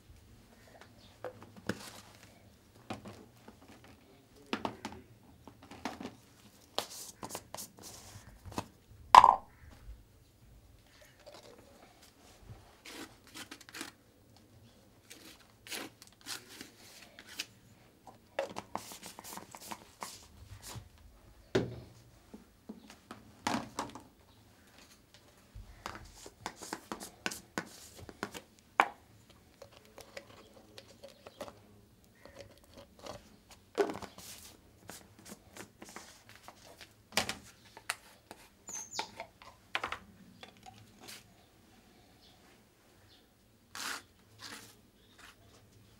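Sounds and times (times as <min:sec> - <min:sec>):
paint jars and brushes knocking: 0:09.2 - 0:09.6.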